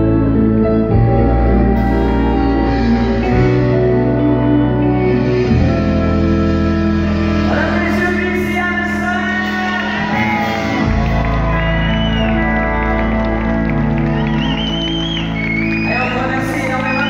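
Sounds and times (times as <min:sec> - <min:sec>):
live country band playing: 0:00.0 - 0:17.0
person shouting over music: 0:09.2 - 0:11.6.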